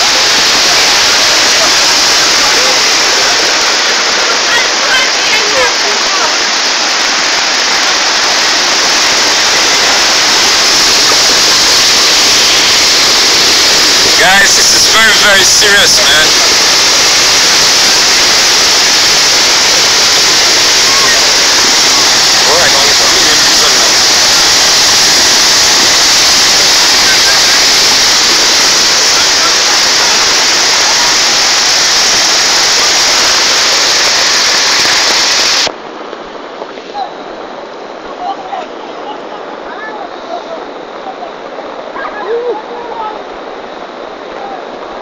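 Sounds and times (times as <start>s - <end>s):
floodwater rushing: 0.0s - 45.0s.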